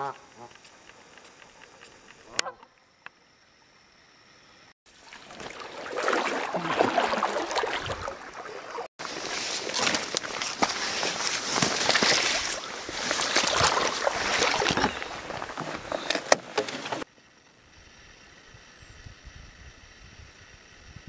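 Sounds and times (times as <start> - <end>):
faint outdoor hiss: 0.0 - 6.5
water splashing around a canoe: 4.9 - 17.1.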